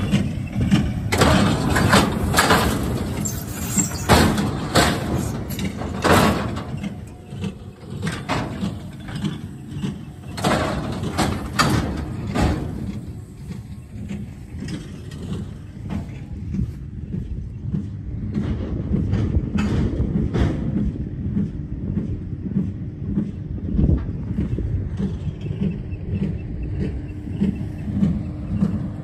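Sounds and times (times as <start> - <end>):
metallic clanks and knocks: 0.0 - 16.7, 18.3 - 20.8
farm machinery droning: 0.0 - 29.0.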